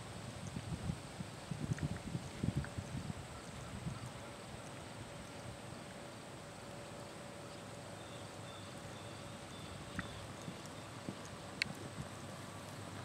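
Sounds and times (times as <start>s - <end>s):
outdoor background noise: 0.0s - 13.0s.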